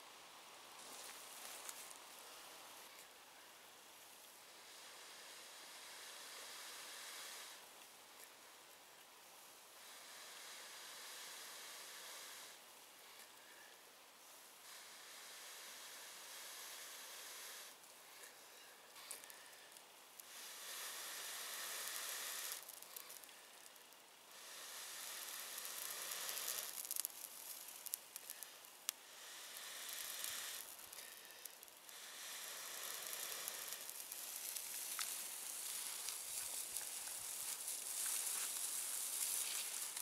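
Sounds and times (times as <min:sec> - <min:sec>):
small sharp crackles: 0:24.6 - 0:40.0.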